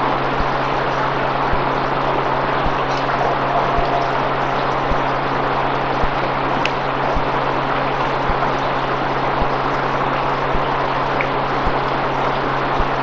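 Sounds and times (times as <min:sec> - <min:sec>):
low hum: 0:00.0 - 0:08.8.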